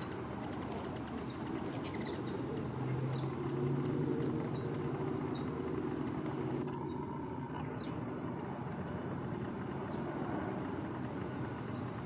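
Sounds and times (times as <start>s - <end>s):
high bird chirps: 0.0s - 2.5s
steady low rumble: 0.0s - 12.0s.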